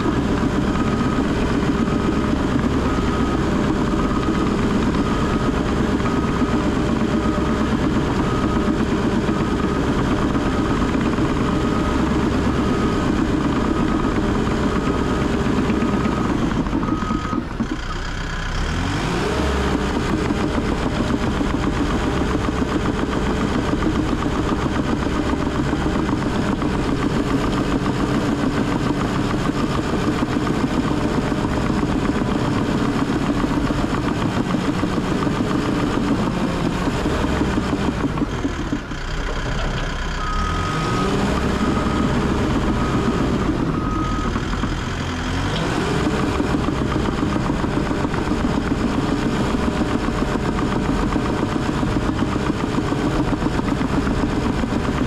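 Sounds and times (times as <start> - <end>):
bulldozer diesel engine: 0.0 - 55.0
reverse alarm beeping: 0.3 - 17.5, 40.2 - 44.7.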